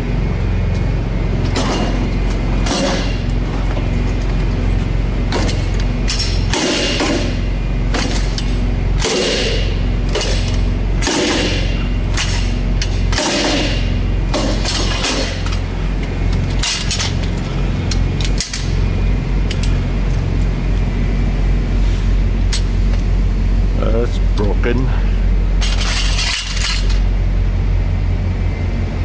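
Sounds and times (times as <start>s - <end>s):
truck idling hum: 0.0s - 29.0s
steel bar clanking and scraping: 2.6s - 3.3s, 5.3s - 15.7s, 16.3s - 18.8s, 25.6s - 27.1s.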